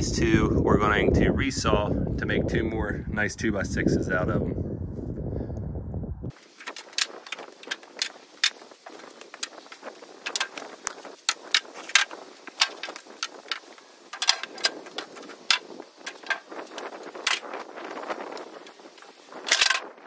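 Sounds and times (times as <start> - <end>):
wooden boards knocking together: 6.4 - 17.5.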